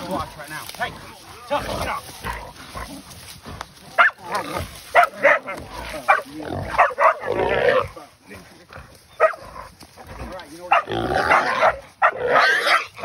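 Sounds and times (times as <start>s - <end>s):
dogs barking: 3.9s - 7.8s, 9.1s - 9.8s, 10.4s - 13.0s
wild hog squealing: 10.7s - 13.0s.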